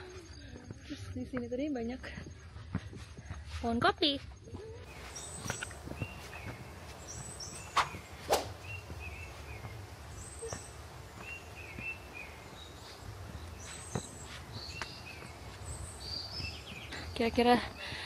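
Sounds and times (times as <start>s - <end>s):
steady low outdoor background: 0.0s - 18.0s
birds chirping: 4.4s - 18.0s.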